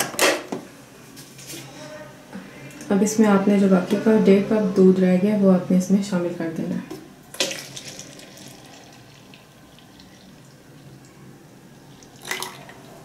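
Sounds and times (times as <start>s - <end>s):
milk trickling into jar: 7.4s - 13.0s.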